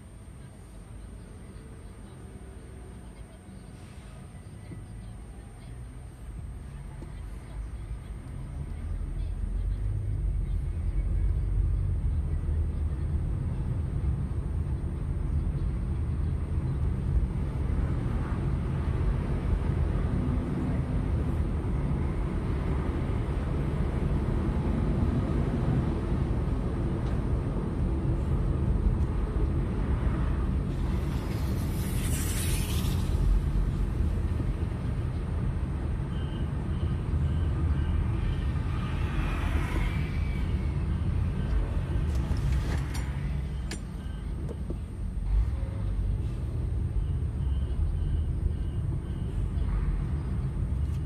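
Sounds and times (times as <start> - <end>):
car engine and tyres rumbling: 0.0 - 51.0.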